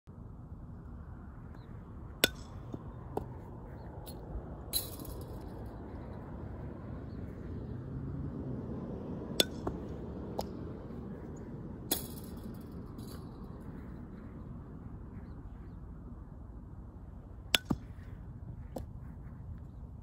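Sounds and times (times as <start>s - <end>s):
low outdoor rumble: 0.1s - 20.0s
sharp clinks: 4.0s - 5.7s, 11.9s - 13.5s.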